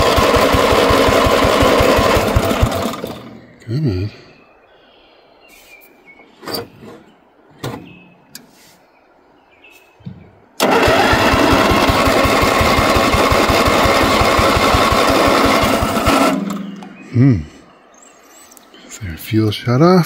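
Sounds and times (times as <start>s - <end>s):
engine starter cranking: 0.0s - 3.6s, 10.6s - 17.0s
engine chugging: 0.0s - 4.2s, 10.6s - 17.6s.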